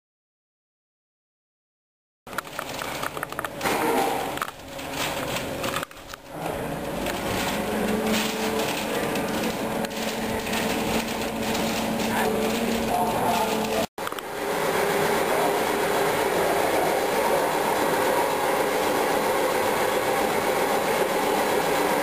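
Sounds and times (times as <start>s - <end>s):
masking paper crinkling: 2.3s - 13.9s.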